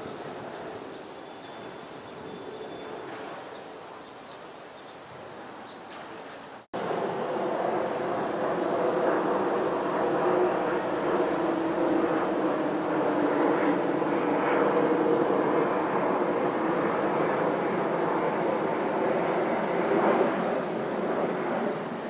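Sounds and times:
distant engine drone: 6.7s - 22.0s.

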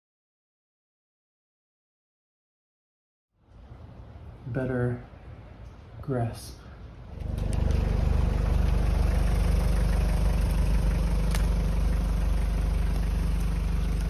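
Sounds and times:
van engine idling: 7.1s - 14.0s.

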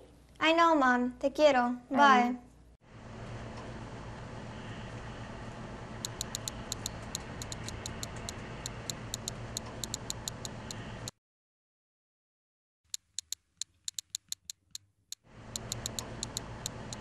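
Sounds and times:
low hum and hiss: 0.0s - 11.1s
sharp ticking clicks: 6.0s - 10.8s, 12.9s - 17.0s.

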